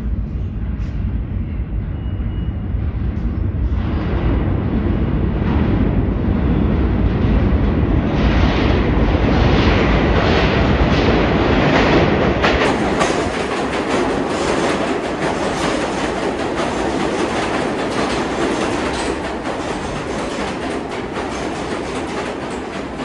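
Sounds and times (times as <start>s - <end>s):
subway train rumbling past: 0.0s - 23.0s
train wheels clacking over rail joints: 9.8s - 23.0s.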